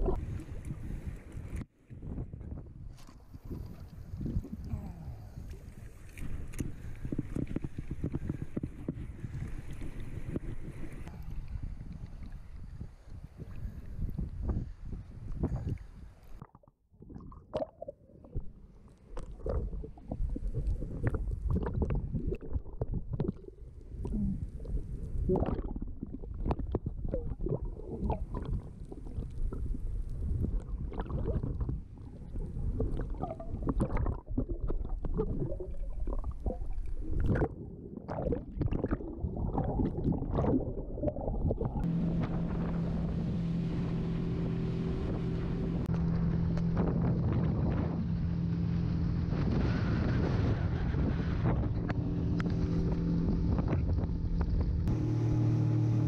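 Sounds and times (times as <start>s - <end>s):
wind on microphone: 0.0s - 16.4s, 19.4s - 55.0s
muffled underwater rumble: 0.0s - 56.0s
water clicks and crackles: 0.0s - 56.0s
boat engine hum: 41.8s - 56.0s.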